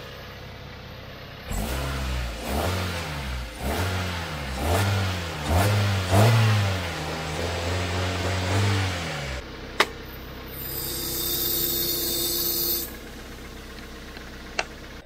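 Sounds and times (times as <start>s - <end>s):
car engine revving: 1.4s - 9.7s.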